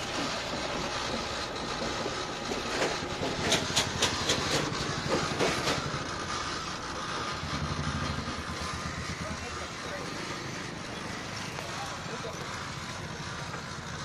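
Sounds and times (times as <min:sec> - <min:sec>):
popcorn popping in machine: 0:00.0 - 0:14.0
street traffic hum: 0:00.0 - 0:14.0.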